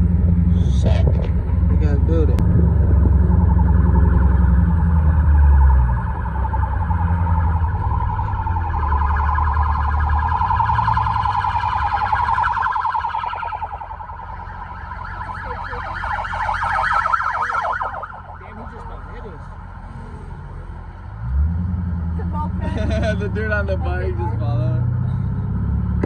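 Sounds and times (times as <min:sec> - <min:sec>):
deep low rumble: 0:00.0 - 0:16.9
police siren warbling: 0:02.6 - 0:20.4.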